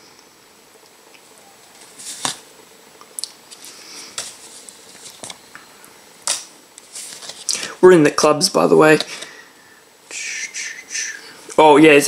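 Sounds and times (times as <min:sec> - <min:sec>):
playing cards snapping off deck: 0:01.8 - 0:02.4, 0:06.2 - 0:06.5.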